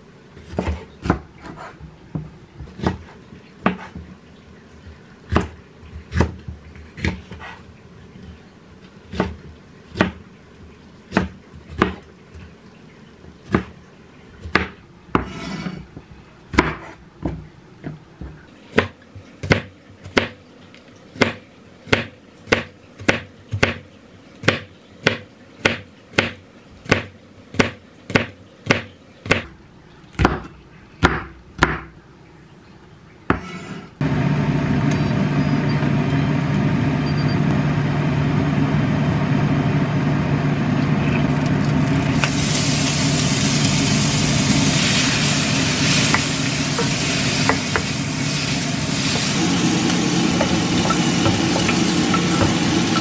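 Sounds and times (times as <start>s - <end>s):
knife chopping on wooden board: 0.4s - 4.0s, 16.5s - 17.4s, 24.4s - 29.5s
knife scraping board: 0.5s - 1.8s, 15.2s - 15.9s, 16.7s - 17.0s, 33.3s - 34.0s.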